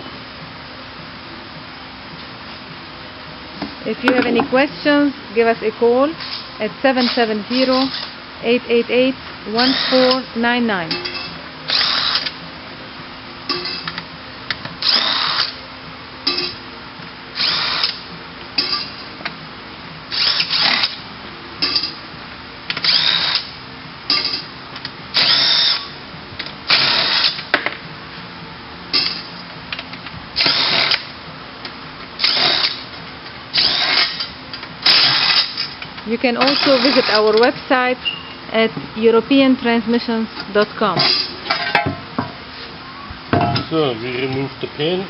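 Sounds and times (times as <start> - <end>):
cordless drill whirring: 9.6 - 10.2, 11.7 - 12.3, 14.8 - 15.6, 20.1 - 21.0, 22.8 - 23.5, 25.2 - 25.9, 32.2 - 32.8, 36.4 - 37.2.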